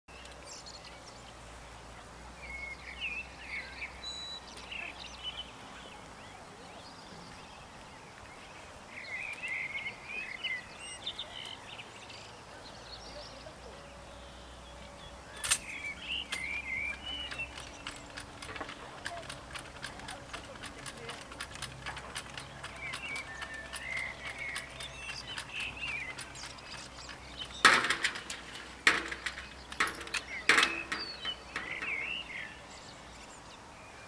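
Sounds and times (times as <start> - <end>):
birds chirping and twittering: 0.1 - 34.0
sharp click: 15.4 - 32.2.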